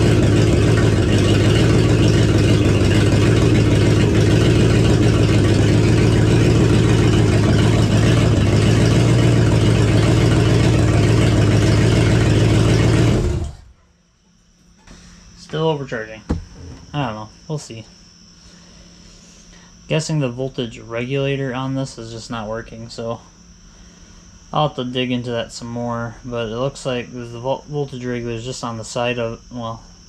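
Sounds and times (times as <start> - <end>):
car engine running without exhaust: 0.0 - 17.4.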